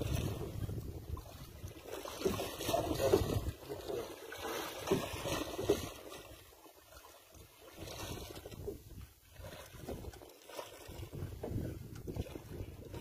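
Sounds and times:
wind buffeting microphone: 0.0s - 3.8s, 7.8s - 10.2s, 10.8s - 13.0s
sea noise: 0.0s - 13.0s.

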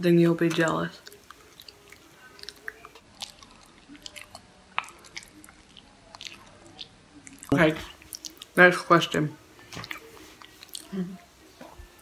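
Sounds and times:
person chewing with wet mouth clicks: 0.5s - 8.5s.

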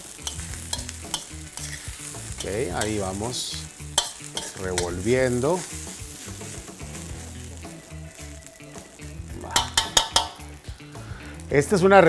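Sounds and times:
metal spoon scraping wok: 0.0s - 7.5s
food sizzling in a wok: 0.0s - 12.0s.

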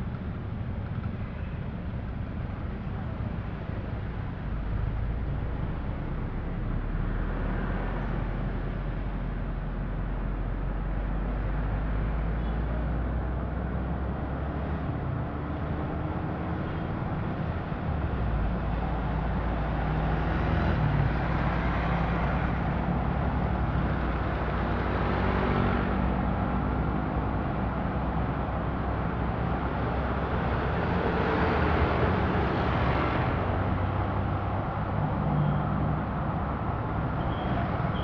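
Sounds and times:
car engine and tyre noise: 0.0s - 38.0s
surrounding traffic: 0.0s - 38.0s.

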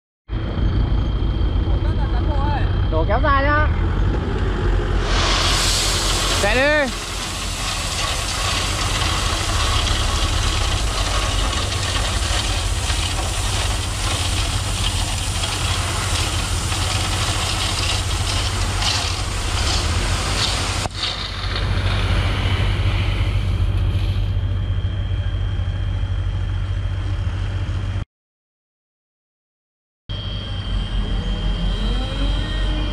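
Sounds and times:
dump truck engine running: 0.3s - 28.0s
crushed stone pouring out: 5.0s - 23.5s.

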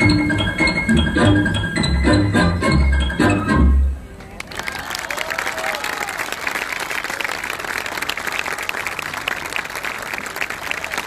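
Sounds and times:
crowd applauding: 4.4s - 11.0s.

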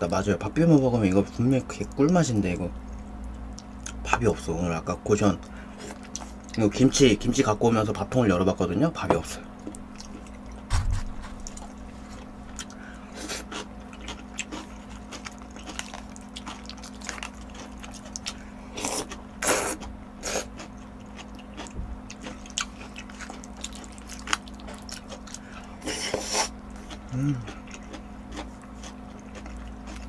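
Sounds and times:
steady low hum: 0.0s - 30.0s
wet chewing and mouth smacking: 9.6s - 10.7s, 11.3s - 30.0s
slurping noodles: 25.8s - 26.6s.

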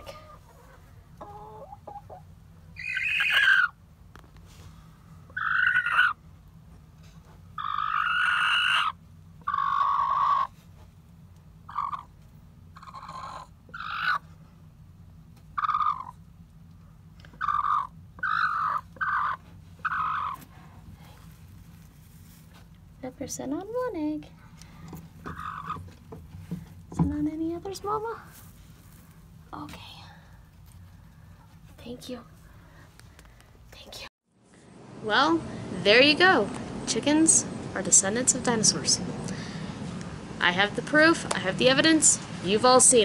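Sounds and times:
hen squawking: 2.8s - 3.8s, 5.3s - 6.2s, 7.6s - 10.6s, 11.7s - 12.2s, 12.8s - 14.3s, 15.5s - 16.2s, 17.3s - 20.5s, 25.2s - 25.9s.

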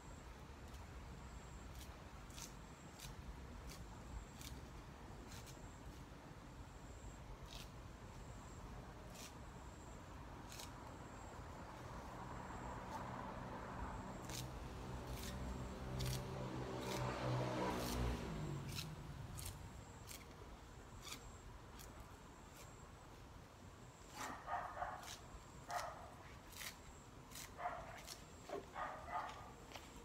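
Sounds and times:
engine hum: 10.6s - 20.7s
dog barking: 24.1s - 26.2s, 27.6s - 29.6s.

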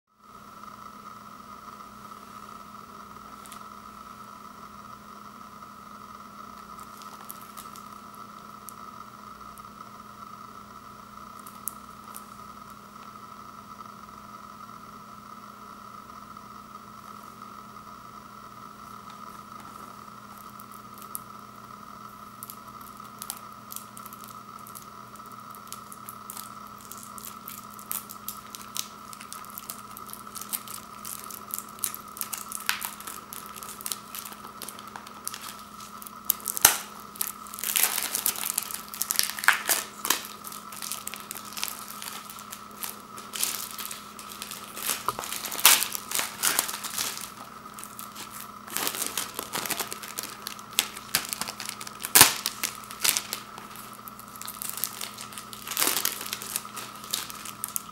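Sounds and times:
steady hum: 0.1s - 57.9s
plastic wrap crinkling: 3.3s - 3.7s, 6.5s - 8.0s, 18.8s - 21.3s, 22.2s - 57.9s.

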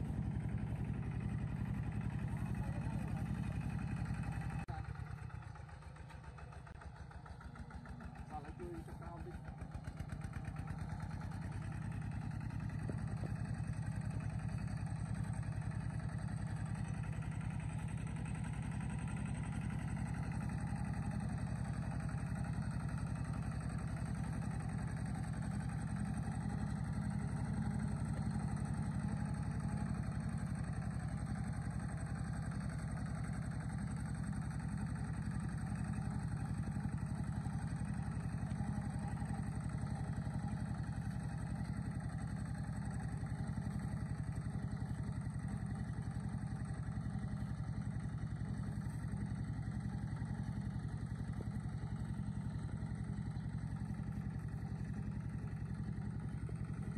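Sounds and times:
vehicle engine running: 0.0s - 56.9s.

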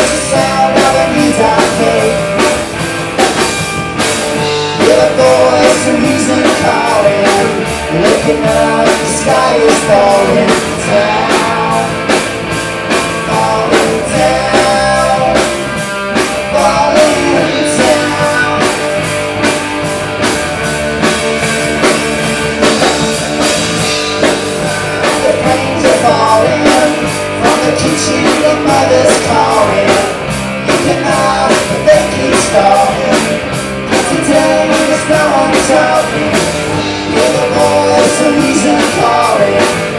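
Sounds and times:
people singing: 0.0s - 2.6s, 4.7s - 12.2s, 13.1s - 15.6s, 16.4s - 18.9s, 24.3s - 39.9s
bass guitar: 0.0s - 39.9s
drum kit beat: 0.0s - 39.9s
electric guitar: 0.0s - 39.9s.

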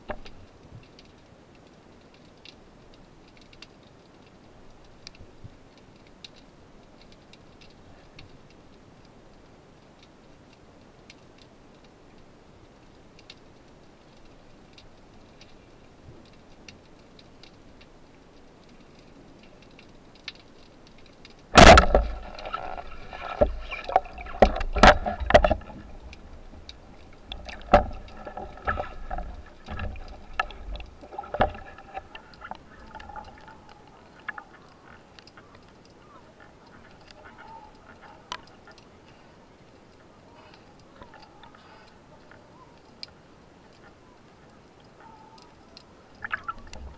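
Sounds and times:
faint underwater clicking: 0.0s - 46.9s
rushing water: 0.0s - 46.9s
loud underwater knocks: 21.6s - 26.0s, 27.3s - 32.0s.

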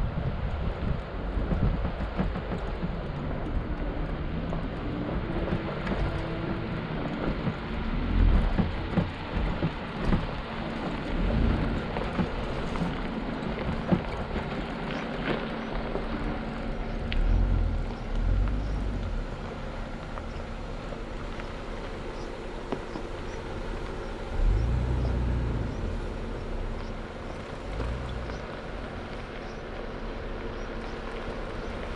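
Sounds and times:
heavy low thumps over bumps: 0.0s - 14.8s, 15.5s - 31.9s
truck engine running: 0.0s - 31.9s.

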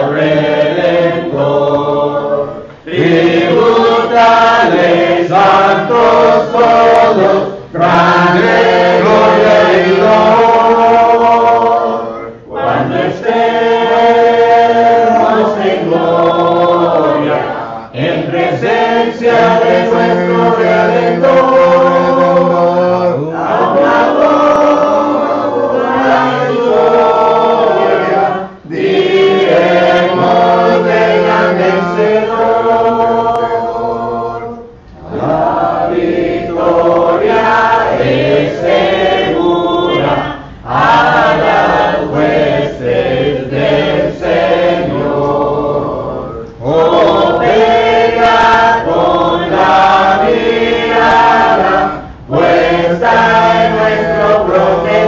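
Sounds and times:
congregation singing a hymn: 0.0s - 55.0s.

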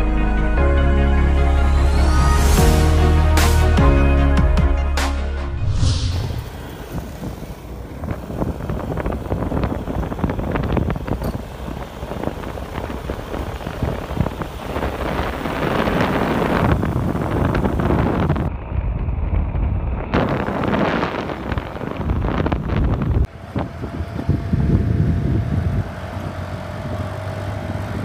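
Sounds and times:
wind buffeting microphone: 5.6s - 28.0s
scooter engine and road rumble: 6.0s - 28.0s.

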